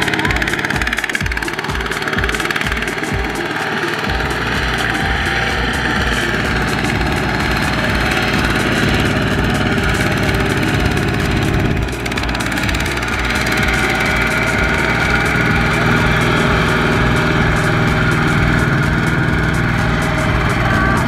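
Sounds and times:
diesel engine running: 0:00.0 - 0:21.0.

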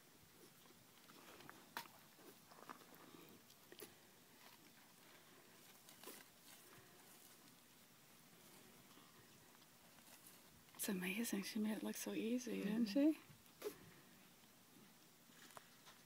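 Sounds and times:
cows licking wet smacks: 0:00.2 - 0:07.0.

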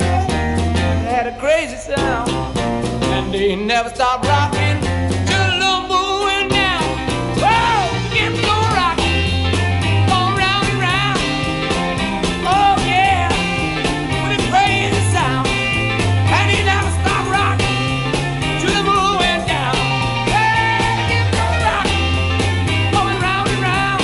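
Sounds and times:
bending lead notes: 0:00.0 - 0:03.8
bass line: 0:00.0 - 0:24.0
drum beats: 0:00.0 - 0:24.0
rock and roll band: 0:00.0 - 0:24.0.

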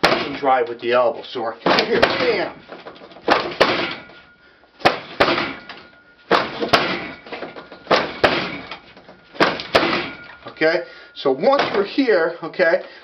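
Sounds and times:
strikes on wooden training dummy: 0:00.0 - 0:00.9, 0:01.6 - 0:10.7, 0:11.4 - 0:12.0.

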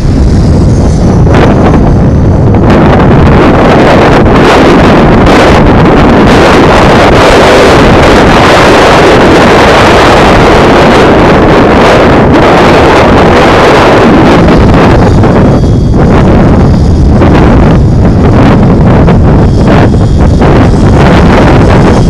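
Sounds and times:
rc helicopter rotor and motor: 0:00.0 - 0:22.0
wind buffeting microphone: 0:00.0 - 0:22.0.

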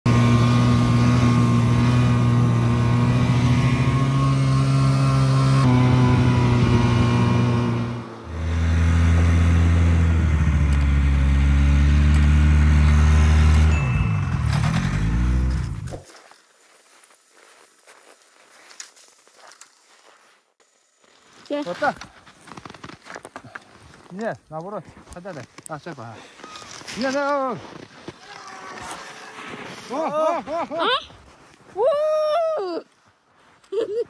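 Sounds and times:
snowmobile engine running: 0:00.1 - 0:15.9.

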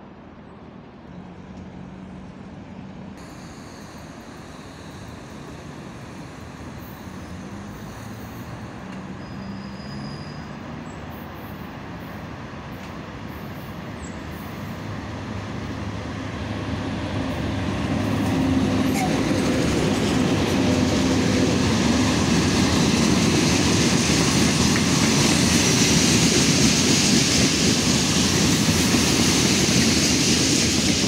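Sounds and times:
electric locomotive hum and rumble: 0:11.8 - 0:31.0.

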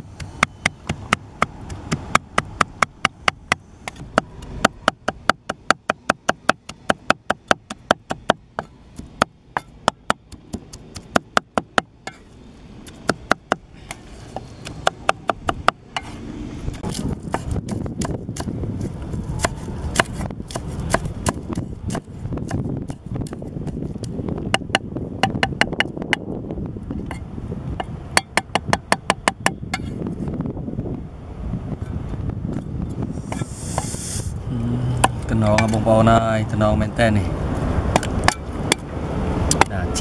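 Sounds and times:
cleaver chopping on wooden board: 0:00.2 - 0:12.2, 0:12.9 - 0:13.7, 0:14.3 - 0:16.2, 0:16.8 - 0:18.6, 0:19.4 - 0:23.8, 0:24.5 - 0:26.2, 0:27.8 - 0:29.9
low rumbling noise: 0:08.4 - 0:40.0.

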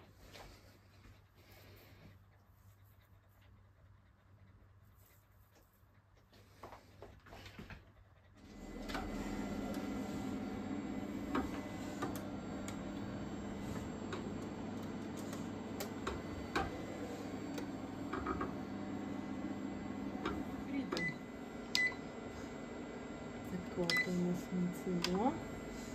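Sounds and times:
embroidery machine humming and clattering: 0:08.4 - 0:25.9.

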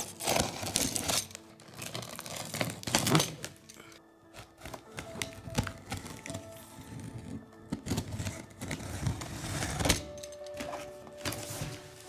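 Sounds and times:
utility knife slicing tape and wrap: 0:00.0 - 0:03.6.

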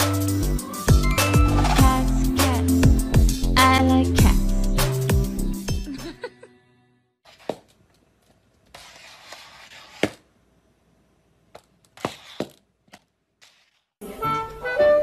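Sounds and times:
plastic cone scraping on tile: 0:08.7 - 0:10.2, 0:12.0 - 0:12.6.

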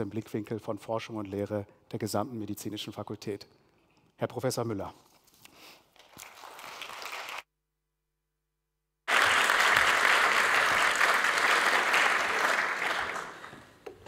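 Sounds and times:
audience applauding: 0:06.2 - 0:07.4, 0:09.1 - 0:13.8.

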